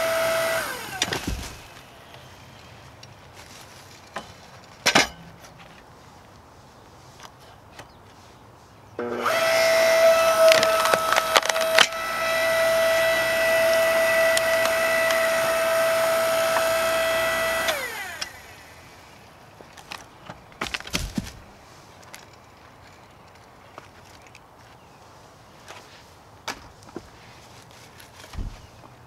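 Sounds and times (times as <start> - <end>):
hydraulic log splitter motor whine: 0.0 - 1.9, 9.0 - 19.3
wood cracking and splitting: 0.1 - 1.8, 9.2 - 18.4, 19.8 - 21.5.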